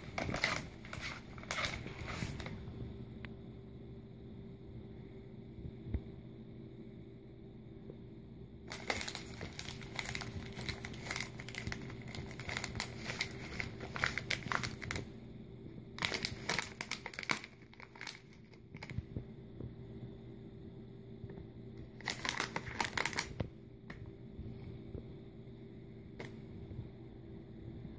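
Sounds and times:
plastic snack bag crinkling: 0:00.0 - 0:02.6, 0:08.7 - 0:15.1, 0:16.0 - 0:19.0, 0:21.8 - 0:23.5.

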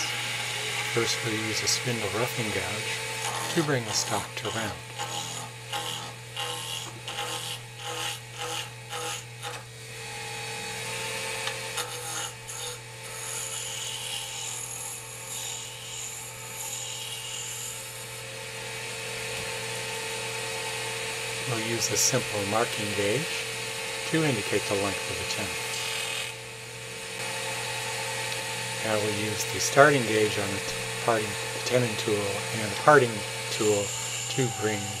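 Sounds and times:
gouge cutting spinning wood: 0:00.0 - 0:10.8, 0:11.4 - 0:17.8, 0:21.2 - 0:35.0
wood lathe motor hum: 0:00.0 - 0:35.0.

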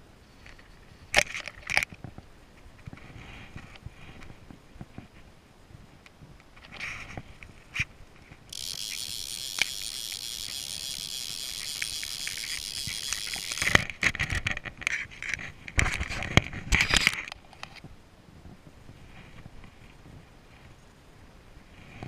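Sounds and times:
fly reel ratchet buzzing: 0:08.5 - 0:13.8.

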